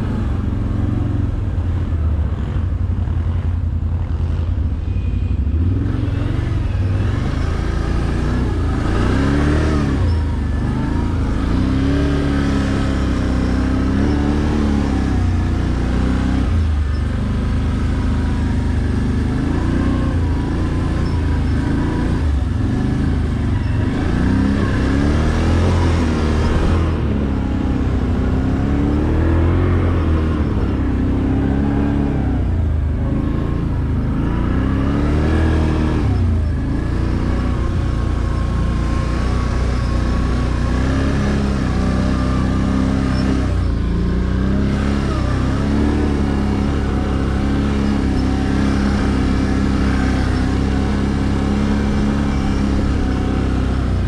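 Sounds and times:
quad bike engine revving: 0:05.6 - 0:54.0.

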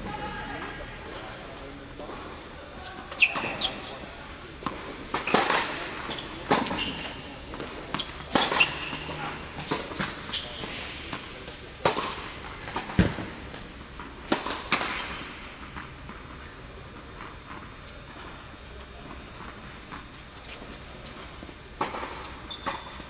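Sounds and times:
tennis balls struck by rackets: 0:04.6 - 0:10.3, 0:11.1 - 0:16.2.

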